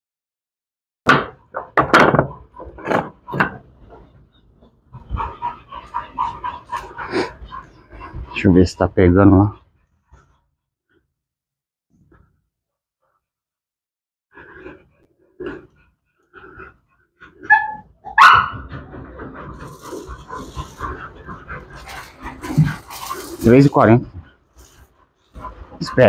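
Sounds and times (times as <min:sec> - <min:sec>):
dog whining: 0:16.5 - 0:23.5
dog barking: 0:17.4 - 0:18.8.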